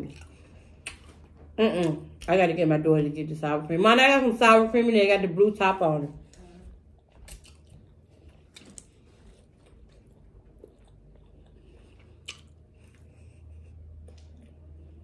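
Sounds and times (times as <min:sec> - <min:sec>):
person chewing: 0:00.0 - 0:01.6, 0:06.2 - 0:15.0
faint low hum: 0:00.0 - 0:15.0.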